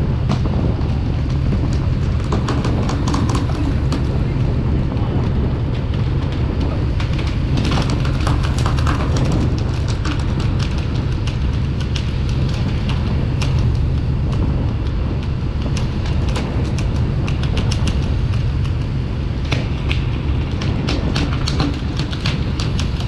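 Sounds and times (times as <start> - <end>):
boat engine rumble: 0.0 - 23.0
water rushing along hull: 0.0 - 23.0
fish flapping on wooden deck: 0.1 - 23.0.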